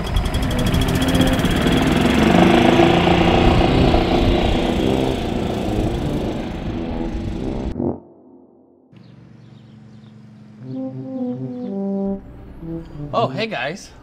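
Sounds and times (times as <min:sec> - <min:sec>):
golf cart engine running: 0:00.0 - 0:07.7, 0:09.0 - 0:10.7.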